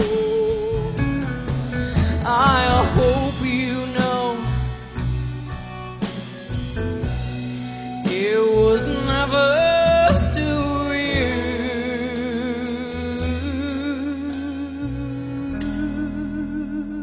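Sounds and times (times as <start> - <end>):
woman singing wordlessly: 0.0 - 1.0, 2.2 - 4.7, 8.1 - 17.0
live band playing slow ballad: 0.0 - 17.0.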